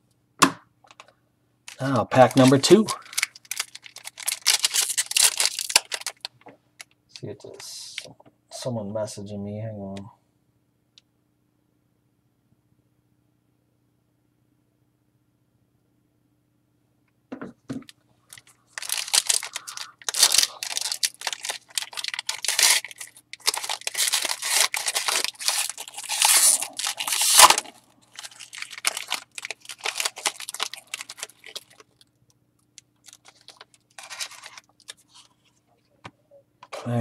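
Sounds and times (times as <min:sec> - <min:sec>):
wrapper crinkling and tearing: 0:01.7 - 0:06.3, 0:18.3 - 0:32.2, 0:32.8 - 0:35.3.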